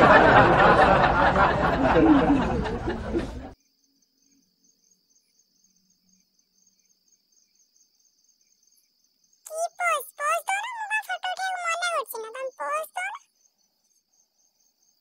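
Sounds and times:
girls laughing: 0.0s - 3.6s.

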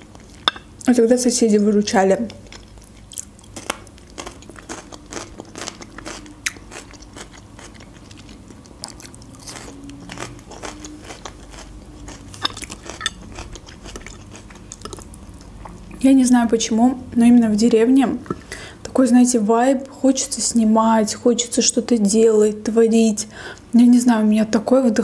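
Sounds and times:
crunchy chewing of raw pepper: 2.3s - 16.0s.

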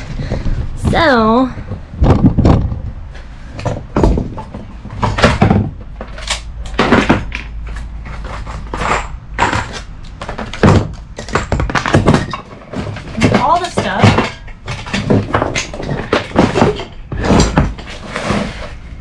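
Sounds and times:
plastic case clattering: 3.6s - 18.8s
cardboard box rummaging: 14.7s - 19.0s.

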